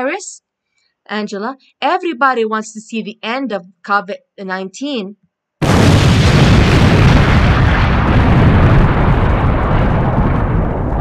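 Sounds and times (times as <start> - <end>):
explosion rumble: 5.6 - 11.0.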